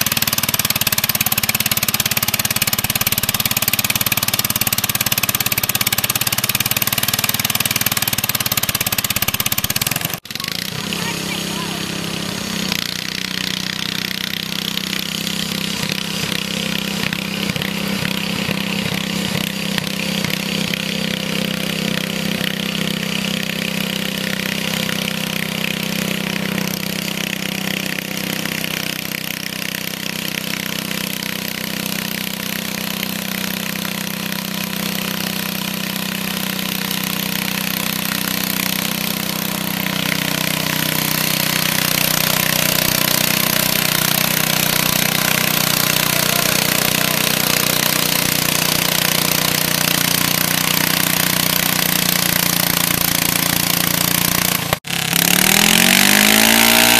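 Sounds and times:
small tractor engine high revs: 0.0s - 56.9s.

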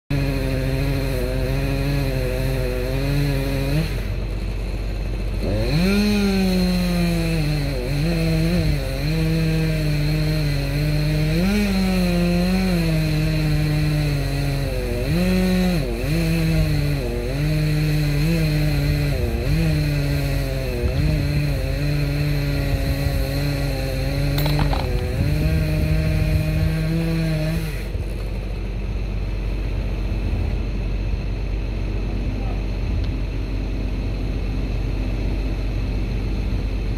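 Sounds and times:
chainsaw engine revving: 0.1s - 28.5s.

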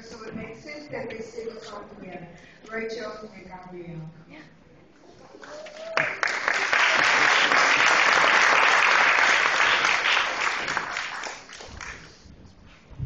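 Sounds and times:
audience applauding: 5.4s - 12.2s.

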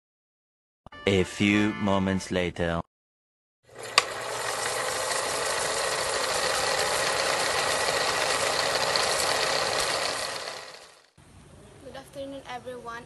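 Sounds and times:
machine rattling with whirring hum: 3.7s - 11.1s.

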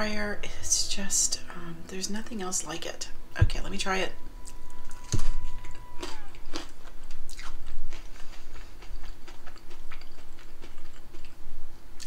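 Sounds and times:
crunchy chewing: 4.9s - 11.4s.

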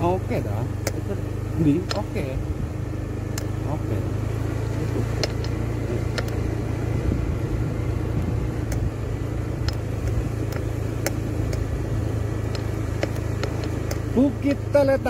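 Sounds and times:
scooter engine running: 0.0s - 15.0s
sharp clicks and knocks: 0.8s - 1.1s, 1.7s - 2.2s, 4.9s - 6.4s, 8.6s - 8.9s, 9.6s - 11.7s, 12.4s - 14.2s.

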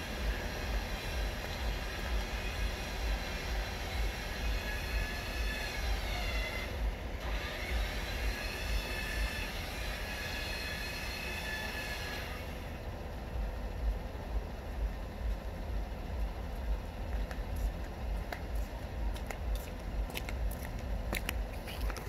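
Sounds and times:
electric winch motor whining: 0.0s - 12.9s.

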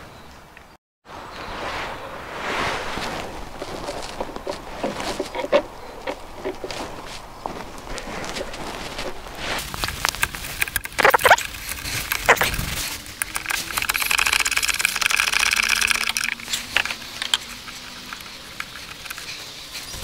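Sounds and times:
plastic rattling and scraping: 3.6s - 7.2s, 7.8s - 20.0s
plastic parts knocking and clicking: 9.7s - 19.8s.

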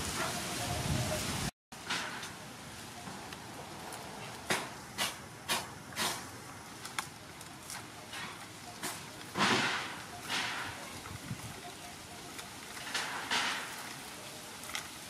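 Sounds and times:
palm fronds crackling: 0.0s - 15.0s.

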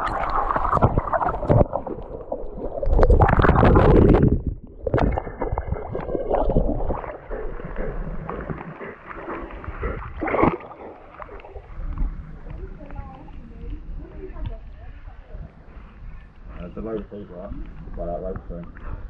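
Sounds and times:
low rumble: 0.0s - 8.6s, 11.0s - 16.2s
river water splashing and gurgling: 0.0s - 12.6s.

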